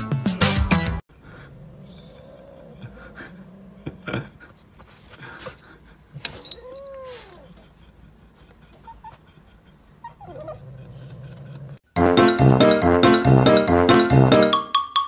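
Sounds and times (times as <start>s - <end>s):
dog whining: 1.4s - 4.0s, 6.2s - 7.8s, 8.6s - 11.8s.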